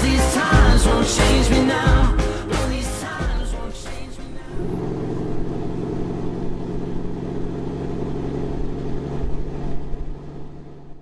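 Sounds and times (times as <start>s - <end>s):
low rumble: 0.6s - 7.6s.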